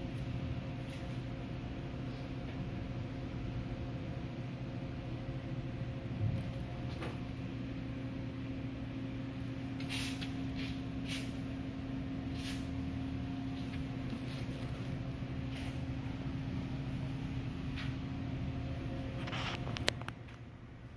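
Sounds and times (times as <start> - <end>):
fan motor humming: 0.0 - 20.9
soft clicks and rustles: 19.2 - 20.5.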